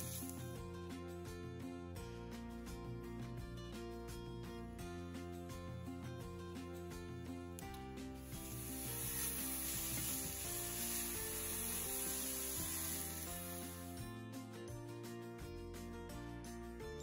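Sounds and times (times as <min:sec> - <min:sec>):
vegetables sizzling in hot oil: 0:00.0 - 0:00.5, 0:08.2 - 0:14.0
background music: 0:00.0 - 0:17.0.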